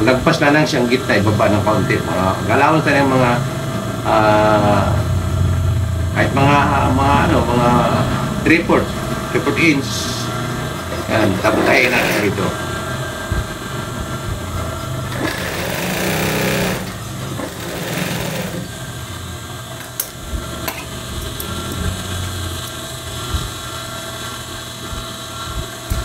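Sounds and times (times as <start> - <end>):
sewing machine running: 10.5 - 12.8, 14.6 - 19.0.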